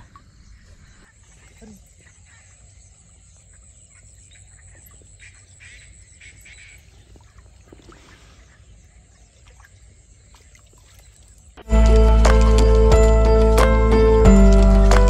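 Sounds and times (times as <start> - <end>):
bird calls: 0.0 - 11.6.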